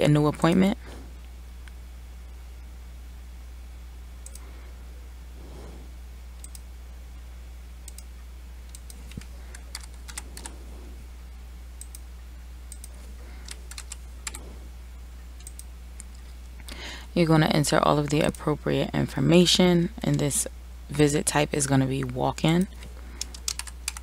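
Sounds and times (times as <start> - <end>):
steady low hum: 0.0 - 24.0
computer keystrokes: 4.2 - 4.4, 6.4 - 6.6, 7.8 - 8.1, 8.7 - 10.6, 12.7 - 14.4, 15.4 - 16.2, 23.2 - 24.0.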